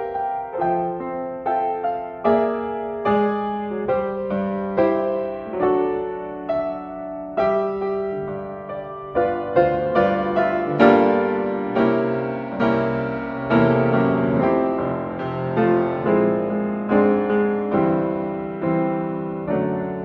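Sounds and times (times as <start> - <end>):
gentle piano chords: 0.0 - 20.0.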